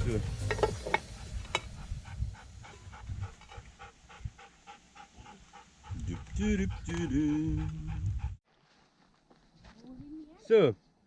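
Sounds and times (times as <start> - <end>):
dog panting: 1.2 - 8.4.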